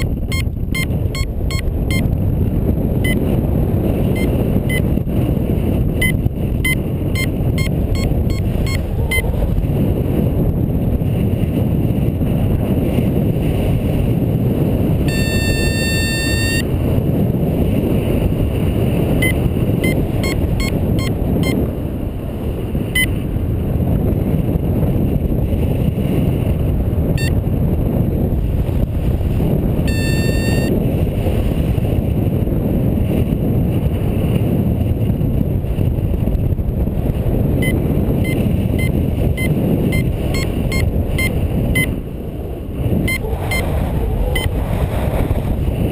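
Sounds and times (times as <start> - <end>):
long beeping tones: 0.0 - 2.1, 6.0 - 9.3, 15.1 - 16.7, 19.2 - 21.6, 29.9 - 30.7, 37.6 - 42.0
variometer high beeps: 0.0 - 2.1, 3.0 - 3.2, 4.1 - 4.9, 6.0 - 9.3, 15.1 - 16.7, 19.2 - 21.6, 23.0 - 23.2, 29.9 - 30.7, 37.6 - 42.0, 43.0 - 43.7
wind on microphone: 0.0 - 45.9.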